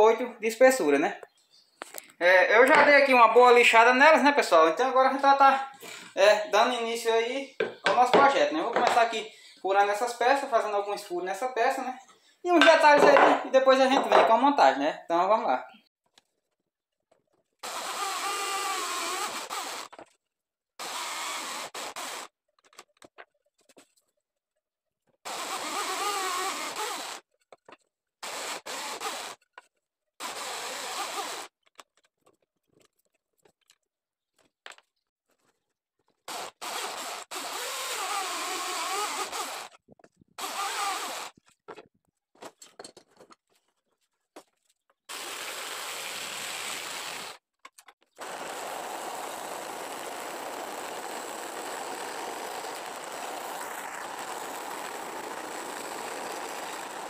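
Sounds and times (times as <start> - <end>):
drill press boring through wood: 17.6 - 20.0, 20.8 - 22.3, 25.3 - 27.2, 28.2 - 29.4, 30.2 - 31.5, 36.3 - 39.8, 40.4 - 41.4, 48.1 - 57.0
belt sander running: 48.2 - 57.0.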